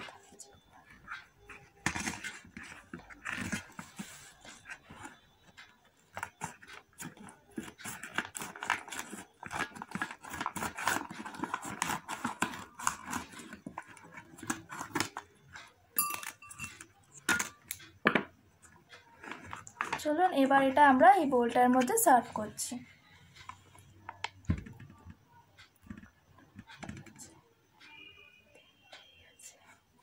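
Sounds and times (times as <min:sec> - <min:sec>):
foil pouch crinkling: 0:06.3 - 0:15.2.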